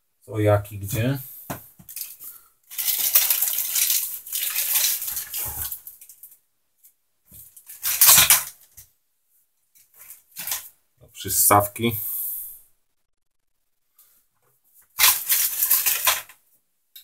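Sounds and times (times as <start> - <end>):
plastic bag crinkling: 1.9 - 6.3, 7.5 - 8.7, 14.9 - 16.4.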